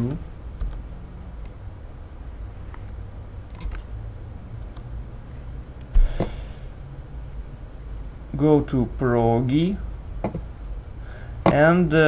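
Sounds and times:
steady low hum: 0.0 - 12.0
computer keyboard and mouse clicks: 2.7 - 3.9
short thump: 6.0 - 6.4.

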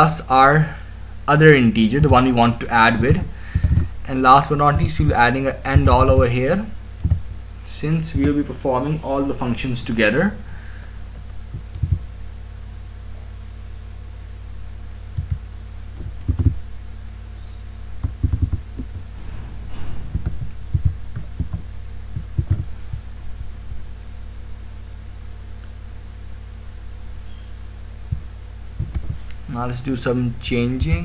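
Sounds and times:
steady low hum: 0.0 - 31.0
keyboard and mouse thumps: 3.0 - 4.0, 5.7 - 6.3, 7.0 - 7.4, 11.1 - 12.1, 15.1 - 16.6, 18.0 - 19.1, 20.0 - 23.1, 28.1 - 29.3, 30.8 - 31.0.

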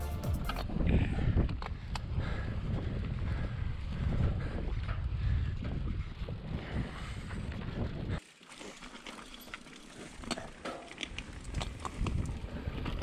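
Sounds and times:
bike rattling: 0.0 - 13.0
bike clicks: 0.2 - 6.3, 6.9 - 13.0
wind rumble on microphone: 0.5 - 8.2, 11.0 - 13.0.

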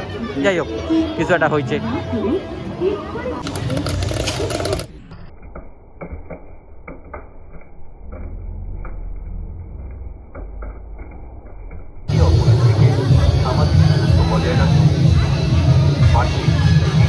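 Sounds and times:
popcorn popping: 3.4 - 4.9.

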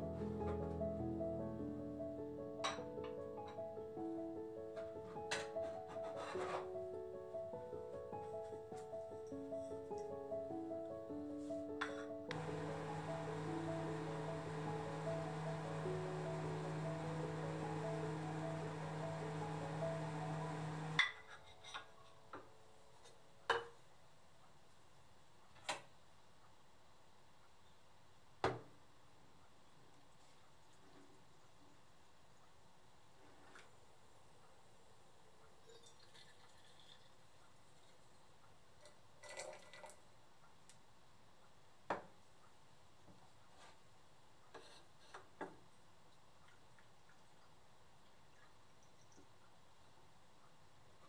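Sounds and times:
coffee trickling from a pot: 35.6 - 38.2, 38.8 - 40.1, 48.2 - 49.3.

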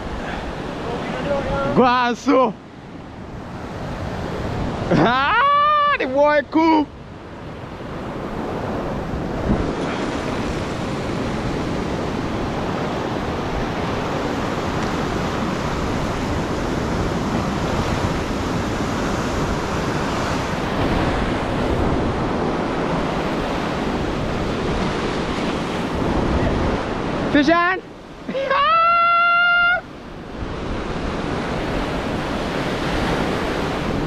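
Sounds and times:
sea waves breaking on shore: 0.0 - 34.0
wind buffeting microphone: 6.9 - 27.4, 29.9 - 34.0.

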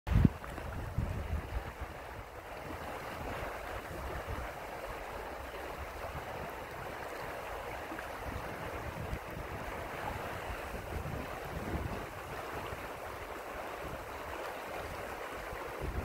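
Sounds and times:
river rushing over riffle: 0.1 - 16.0
wind buffeting microphone: 0.1 - 16.0.

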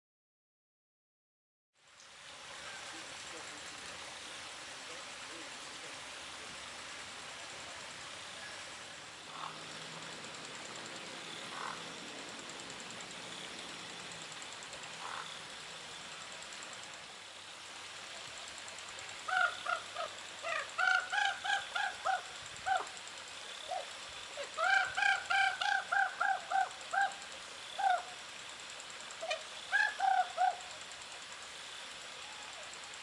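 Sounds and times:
ravens calling: 8.4 - 17.0, 17.8 - 32.9.

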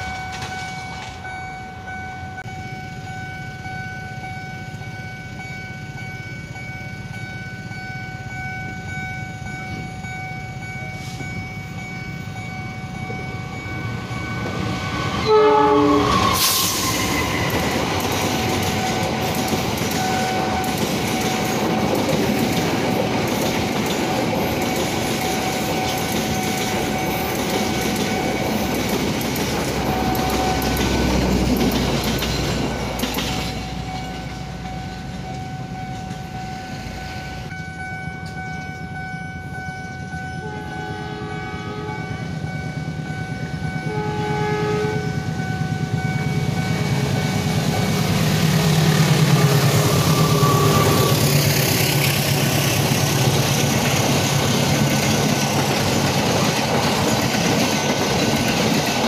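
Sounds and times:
rail clatter: 0.0 - 1.5, 12.9 - 36.4, 45.2 - 59.0
train wheels rumbling past: 0.0 - 40.8, 42.0 - 59.0
level crossing alarm ringing: 0.0 - 59.0
locomotive horn blasts: 15.2 - 17.7, 40.4 - 42.4, 43.7 - 45.4, 48.4 - 51.3.

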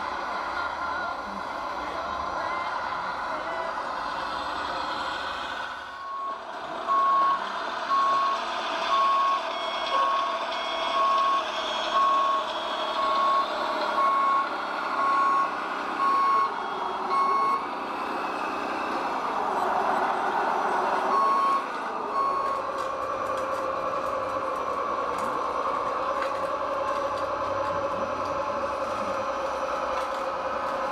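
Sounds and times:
model truck engine sound: 0.0 - 30.9
reversing alarm beeps: 6.0 - 17.6, 21.1 - 22.7.

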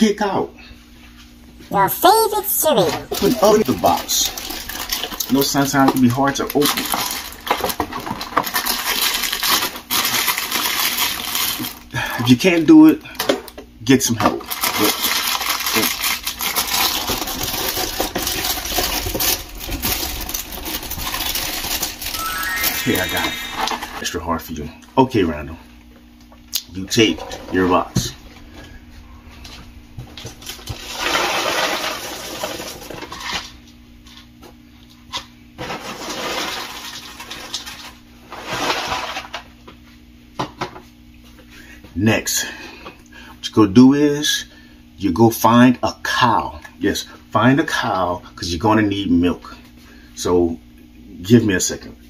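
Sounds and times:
cardboard box crinkling and tearing: 3.2 - 11.8, 14.4 - 22.2
cereal pouring into bowl: 14.6 - 24.0, 30.8 - 33.0, 35.8 - 37.9.

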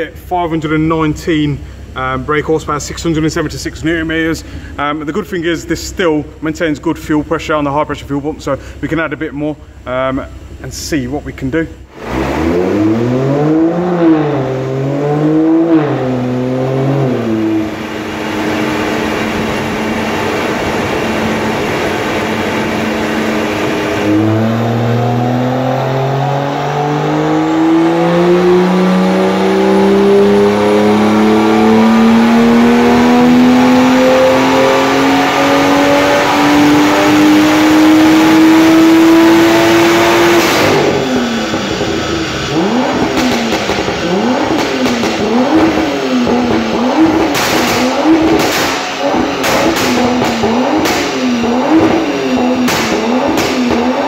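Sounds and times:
car engine revving on dyno: 11.8 - 54.0.

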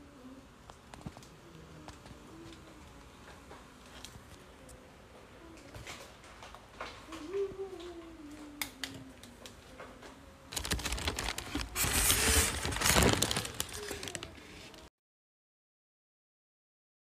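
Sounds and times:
plastic bag crinkling: 10.5 - 14.9.

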